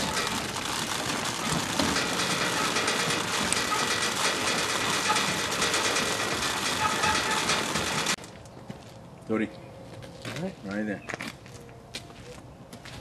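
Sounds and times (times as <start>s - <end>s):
grain drill meters clattering: 0.0s - 8.2s.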